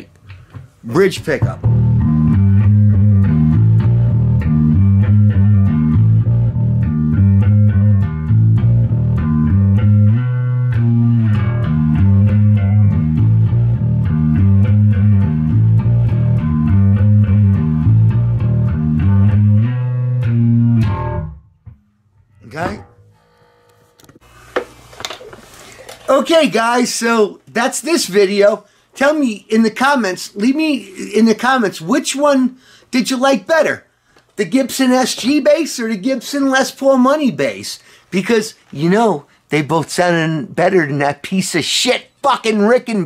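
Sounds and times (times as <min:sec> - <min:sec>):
finger-plucked electric bass riff: 0:01.4 - 0:24.2.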